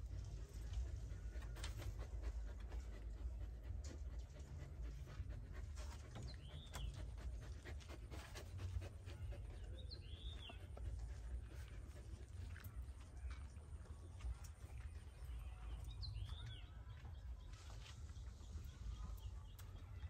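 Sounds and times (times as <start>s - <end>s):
dog panting: 0.0s - 20.0s.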